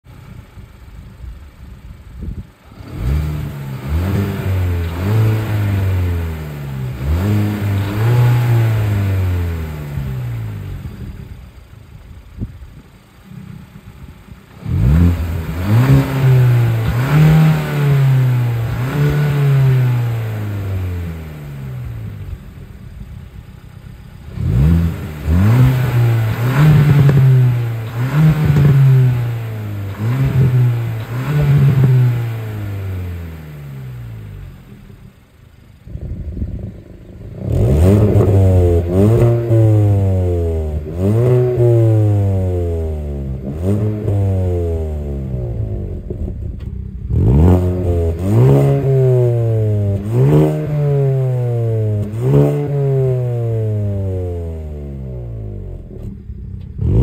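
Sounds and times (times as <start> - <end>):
engine idling: 0.0 - 43.4, 55.0 - 57.0
car engine revving: 1.7 - 12.4, 13.0 - 57.0.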